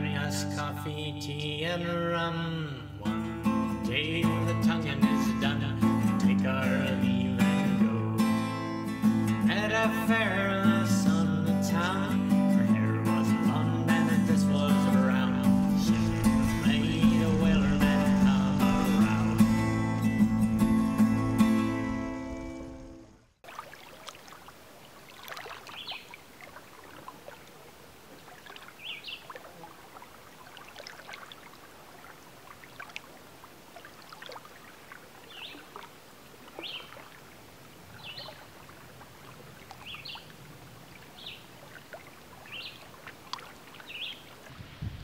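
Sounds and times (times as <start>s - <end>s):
water lapping on shoreline: 13.5s - 45.0s
small light splashes: 23.4s - 44.8s.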